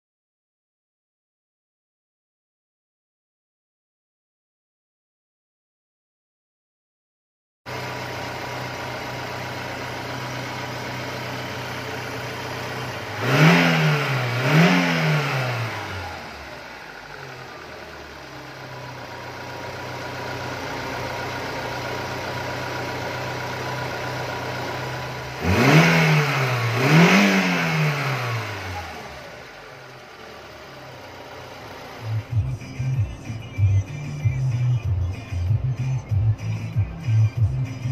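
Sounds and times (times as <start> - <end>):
car engine idling and revving: 7.7 - 37.9.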